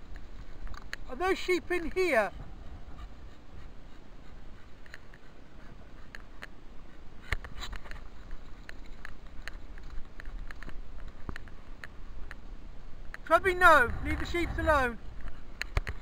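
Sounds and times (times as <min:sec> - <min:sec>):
wind rumble: 0:01.5 - 0:04.9, 0:09.3 - 0:16.0.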